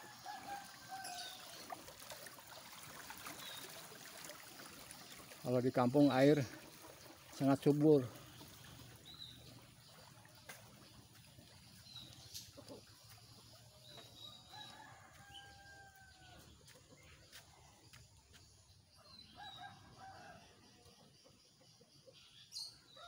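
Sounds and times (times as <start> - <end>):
rooster crowing: 14.4 - 16.4.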